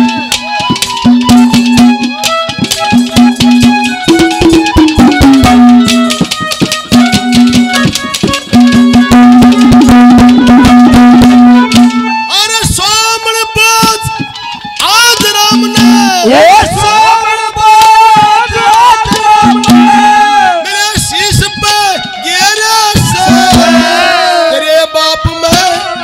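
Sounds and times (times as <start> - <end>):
fast hand drum rhythm: 0.0 - 12.2, 13.8 - 16.7, 19.0 - 24.3
harmonium: 0.0 - 26.0.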